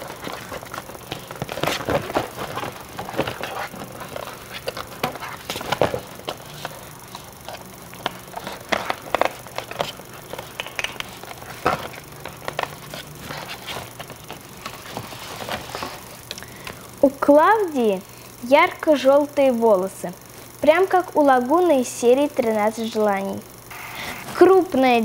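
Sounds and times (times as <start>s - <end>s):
plastic and cardboard packaging rustling: 0.0s - 16.8s.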